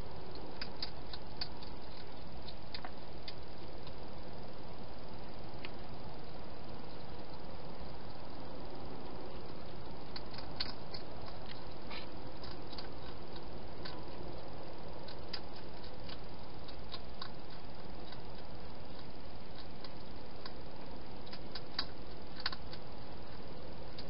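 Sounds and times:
steady hiss: 0.0s - 24.0s
hedgehog chewing clicks: 0.3s - 4.0s, 9.0s - 24.0s.

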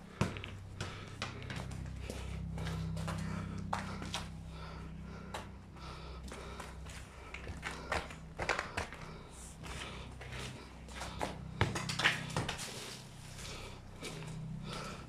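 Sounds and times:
steady low hum: 0.0s - 15.0s
footsteps and scuffing shoes: 0.1s - 15.0s
football kicked on concrete: 0.2s - 1.8s, 11.1s - 12.7s.

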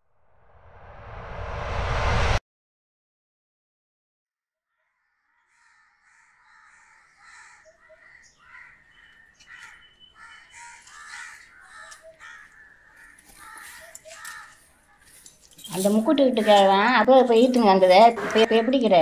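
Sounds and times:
crows cawing: 5.0s - 15.4s, 16.3s - 19.0s.

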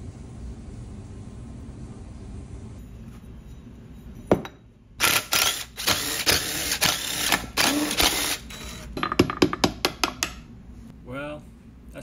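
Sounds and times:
cordless power driver running: 5.0s - 8.9s.

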